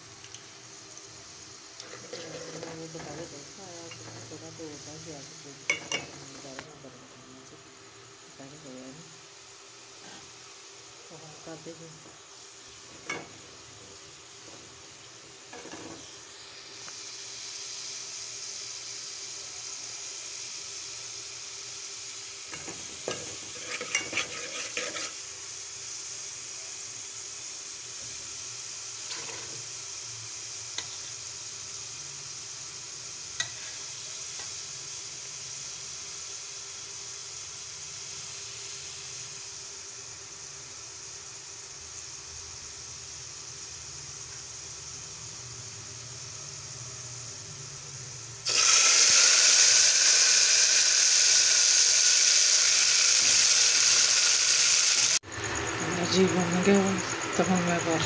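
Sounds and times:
onions sizzling in hot oil: 0.0 - 58.0
ladle scraping metal pot: 1.8 - 3.1, 22.6 - 25.2, 29.1 - 29.6.

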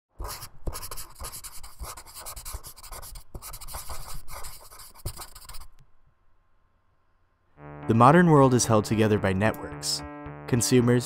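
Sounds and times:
marker pen scratching: 0.2 - 5.8.

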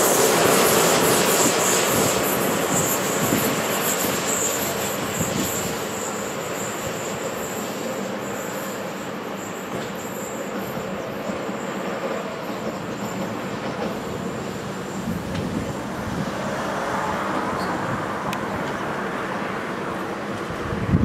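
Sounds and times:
faint high squeal: 0.0 - 14.6
train wheels rumbling on rail: 0.0 - 21.0.

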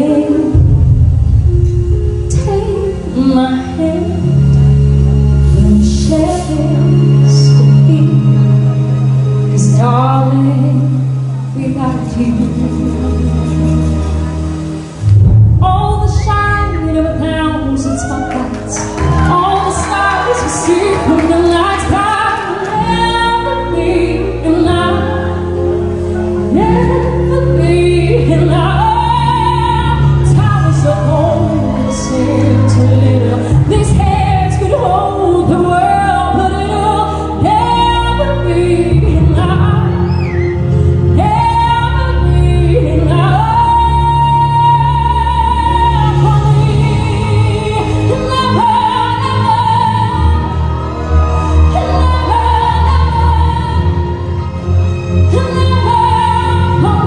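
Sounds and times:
woman singing into microphone: 0.0 - 1.0, 2.2 - 4.6, 5.5 - 8.6, 9.6 - 13.6, 15.6 - 25.7, 26.4 - 40.3, 41.1 - 50.9, 51.6 - 54.4, 55.3 - 57.0
backing track over speakers: 0.0 - 8.6.

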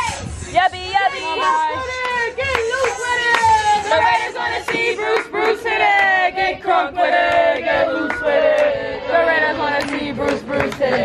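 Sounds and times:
group chanting a cheer: 0.0 - 11.0
hand claps: 2.0 - 3.6, 4.7 - 6.1, 9.8 - 11.0.

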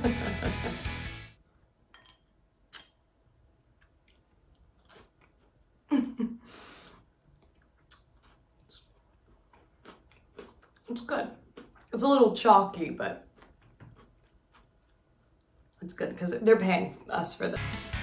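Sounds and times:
person chewing: 2.1 - 6.0, 6.8 - 12.0, 13.1 - 15.8.

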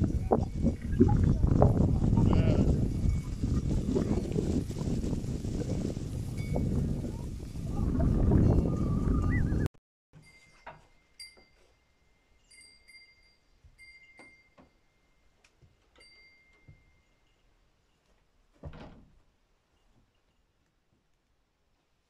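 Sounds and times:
light clinks with high ring: 10.2 - 18.1.

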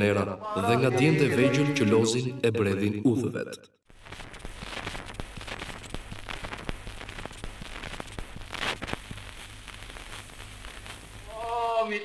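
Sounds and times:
record crackle and clicks: 3.9 - 11.7.

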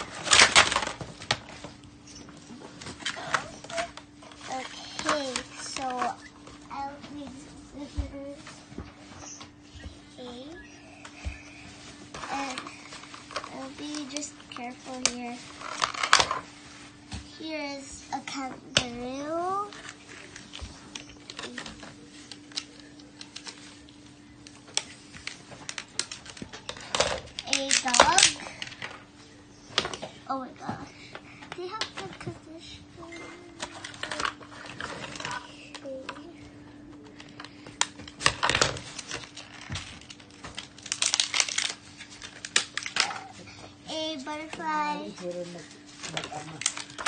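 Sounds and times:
scissors cutting plastic packaging: 0.0 - 1.4, 24.7 - 28.8, 37.2 - 43.3, 46.0 - 47.0
plastic packaging crinkling: 0.0 - 1.9, 11.5 - 16.5, 19.3 - 28.9, 33.0 - 36.0, 37.1 - 43.4, 45.2 - 47.0
faint steady hum: 0.0 - 47.0.

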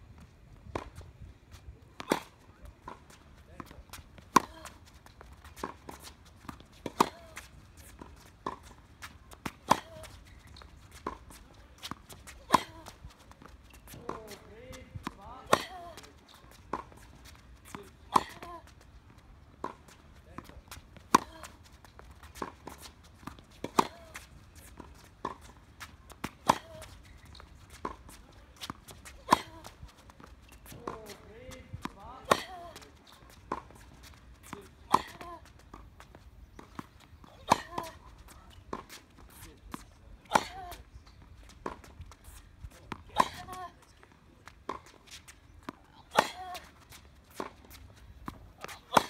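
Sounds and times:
shoes moving on court: 0.1 - 49.0
racket hitting tennis ball: 5.6 - 10.4, 11.0 - 16.1, 22.3 - 27.2, 27.8 - 35.8, 36.6 - 40.8, 42.9 - 43.6, 44.7 - 49.0.

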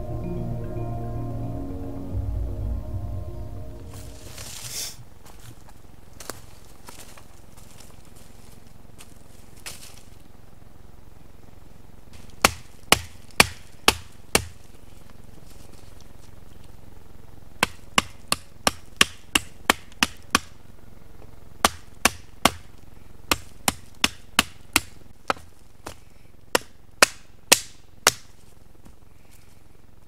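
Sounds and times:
axe chopping a branch: 12.2 - 14.6, 17.6 - 20.6, 21.6 - 22.7, 23.3 - 28.3.

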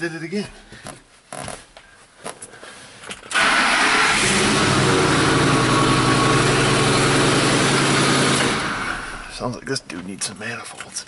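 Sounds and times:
engine starting and idling: 3.3 - 9.4.

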